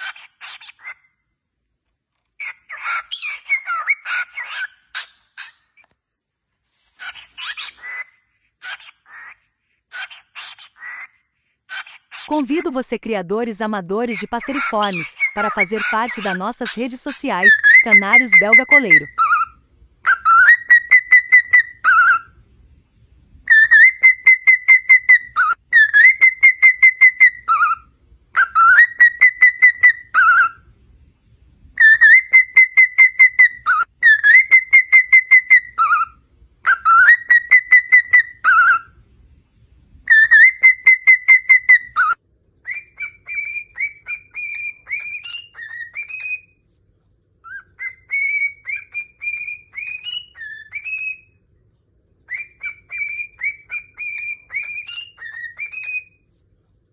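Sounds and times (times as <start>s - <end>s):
cockatiel whistling song: 2.4s - 5.9s, 7.0s - 9.4s, 14.2s - 22.4s, 23.4s - 30.7s, 31.8s - 39.0s, 40.0s - 46.6s, 47.4s - 51.4s, 52.2s - 56.3s
cockatiel chirping whistles: 18.6s - 22.3s, 23.5s - 30.6s, 31.8s - 38.9s, 40.1s - 46.6s, 47.4s - 51.4s, 52.3s - 56.2s.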